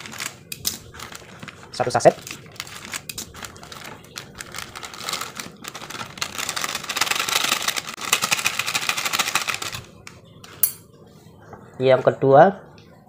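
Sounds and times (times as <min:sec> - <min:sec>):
foil sachet tearing: 0:00.0 - 0:09.9
foil crinkling: 0:00.0 - 0:10.1.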